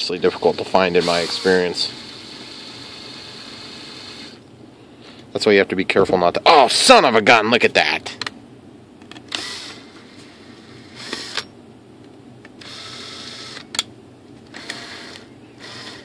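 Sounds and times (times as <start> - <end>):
cordless drill spinning: 0.3 - 4.4, 9.3 - 11.5, 12.6 - 13.7, 14.5 - 16.0.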